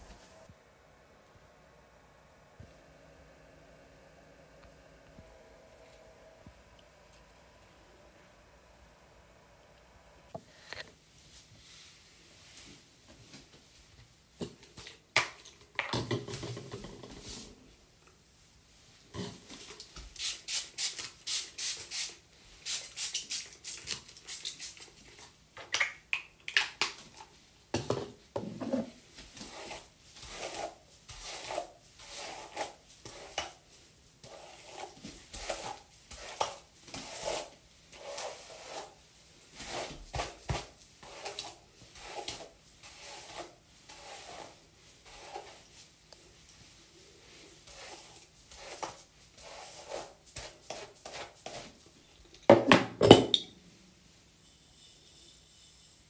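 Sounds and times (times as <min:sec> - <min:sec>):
hair brushing strokes: 0:00.0 - 0:00.6, 0:28.9 - 0:52.0.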